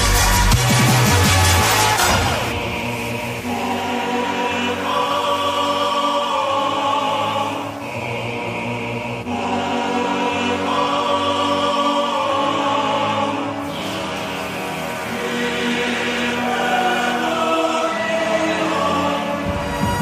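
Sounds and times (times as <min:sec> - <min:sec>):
choir-like background music: 0:00.0 - 0:20.0.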